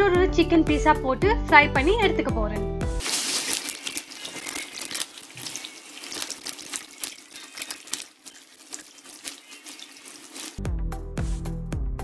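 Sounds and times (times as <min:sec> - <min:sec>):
hot oil sizzling and popping: 0:03.0 - 0:10.6.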